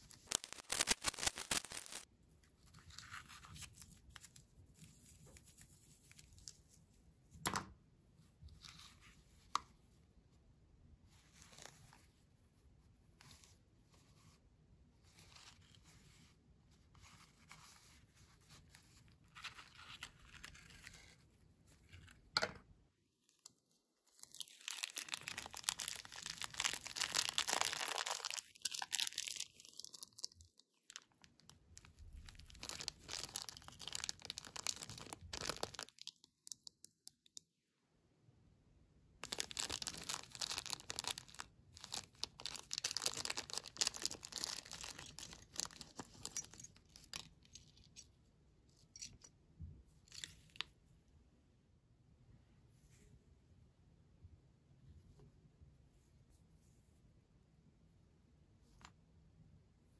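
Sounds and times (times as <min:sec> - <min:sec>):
plastic bag crinkling and tearing: 0:00.0 - 0:02.1, 0:24.2 - 0:36.6, 0:39.2 - 0:47.8.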